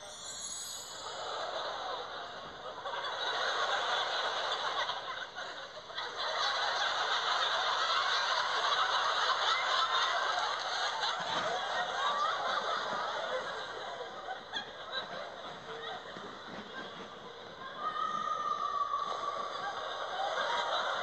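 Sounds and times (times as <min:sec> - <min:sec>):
audience laughing: 0:01.1 - 0:17.6, 0:18.7 - 0:21.0.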